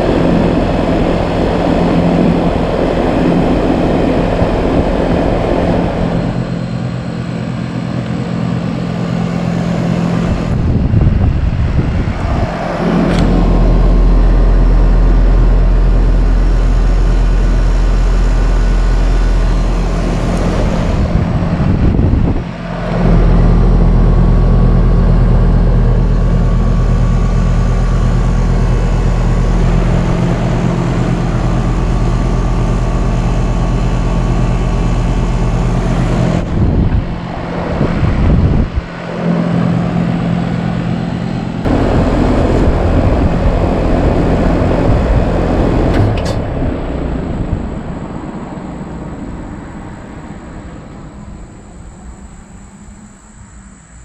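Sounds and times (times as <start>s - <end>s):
fan whooshing: 0.0s - 53.5s
compressor humming: 0.0s - 54.0s.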